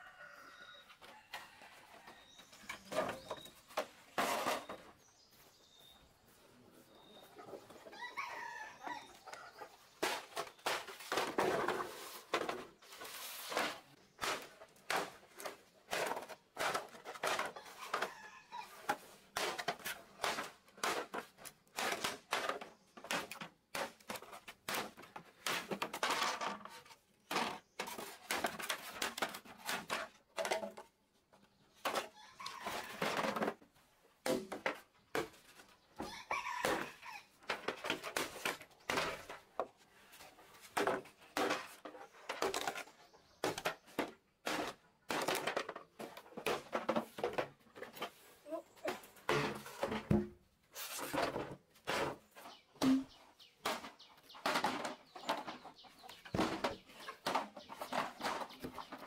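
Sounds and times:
rooster crowing: 0.0 - 0.9
bamboo poles clattering: 2.4 - 5.6, 9.3 - 59.0
chickens clucking: 51.2 - 59.0.

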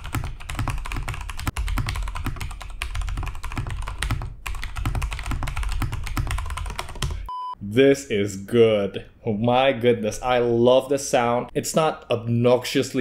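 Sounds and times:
mechanical keyboard typing: 0.0 - 7.3.

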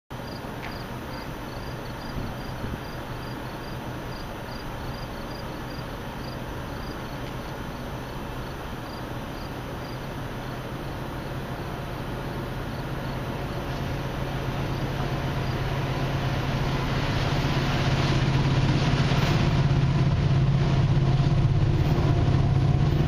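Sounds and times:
outdoor background noise: 0.1 - 23.0
steady low hum: 0.1 - 23.0
insect chirping: 0.2 - 13.7.

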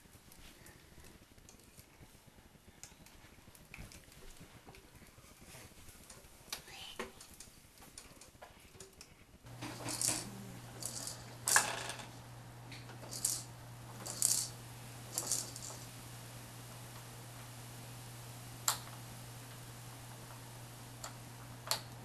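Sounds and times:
steady low hum: 9.4 - 22.0.

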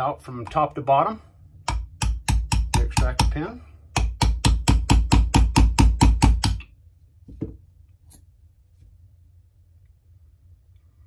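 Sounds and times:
hammer tapping metal punch: 1.6 - 6.7.

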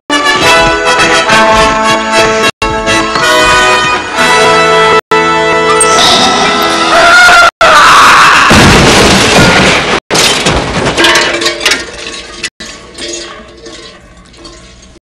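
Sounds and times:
loud crash with crackling and clinking: 8.5 - 15.0.

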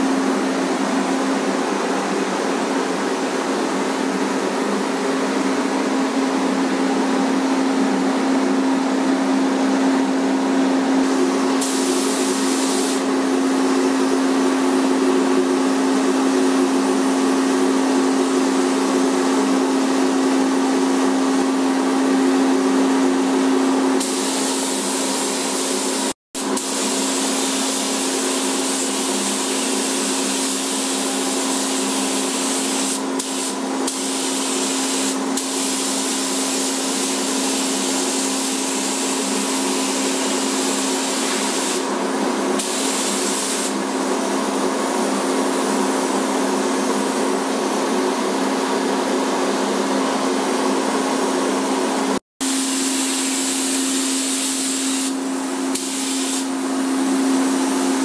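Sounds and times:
ventilation air rush and hum: 0.0 - 58.0
paint spray gun hissing: 11.6 - 13.1, 24.0 - 41.9, 42.6 - 43.9, 52.5 - 56.7.

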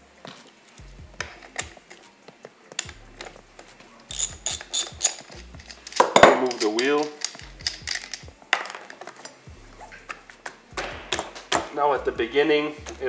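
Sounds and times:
metal tools clicking and tapping: 2.7 - 11.7.

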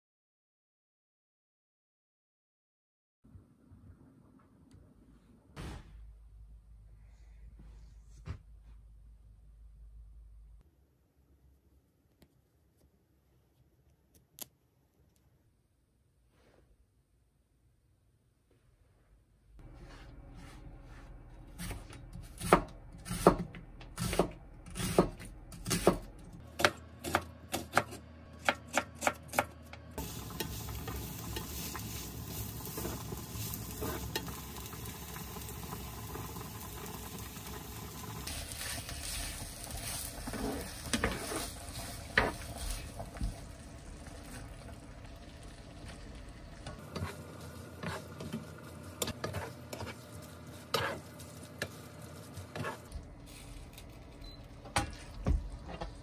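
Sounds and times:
wooden spatula scraping pan: 19.6 - 22.0, 38.3 - 43.0, 46.7 - 48.4, 49.0 - 53.4
knife chopping onion on board: 21.6 - 29.6
sauce sizzling in frying pan: 30.0 - 52.4.

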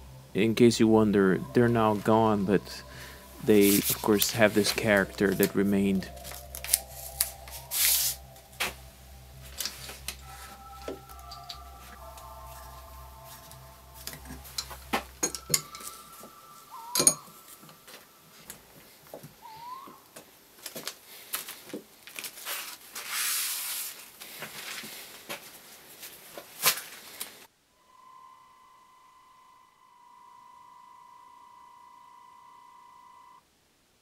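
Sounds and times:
metal clamps clinking and knocking: 14.6 - 16.0, 17.0 - 17.3.

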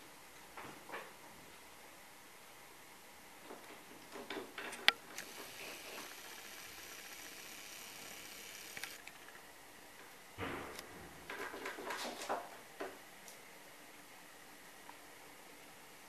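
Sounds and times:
light knocks and clatters: 10.4 - 13.0.

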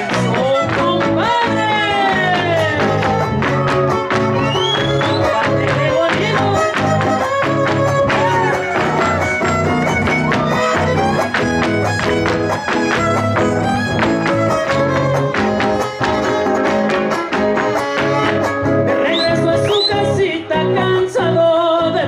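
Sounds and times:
fiddle melody: 0.0 - 20.4
fast rhythmic guitar strumming: 0.0 - 22.0
dancers stamping on wooden stage: 2.2 - 16.2.

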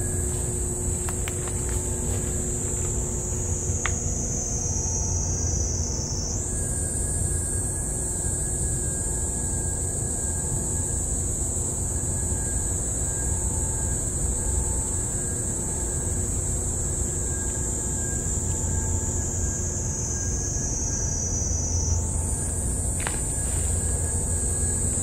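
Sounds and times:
high-pitched insect drone: 0.0 - 25.0.

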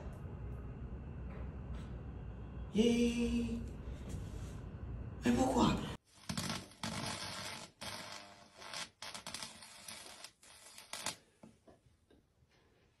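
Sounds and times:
electrical arcing crackling hiss: 6.0 - 11.3.

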